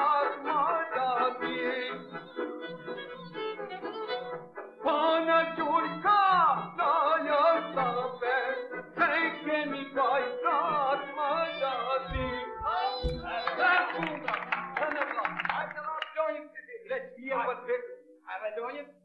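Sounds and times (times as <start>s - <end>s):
person singing ornamented song: 4.8s - 14.3s
low thumps: 12.1s - 13.6s.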